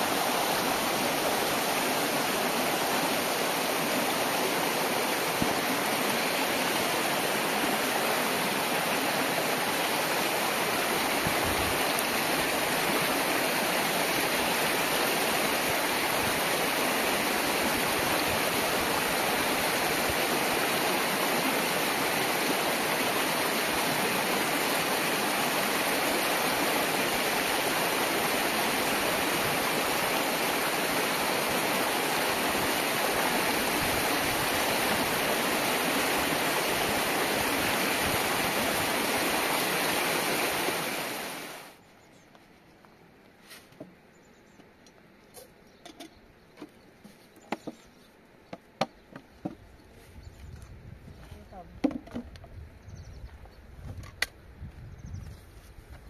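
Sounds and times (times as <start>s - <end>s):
stream rushing over rocks: 0.0s - 41.8s.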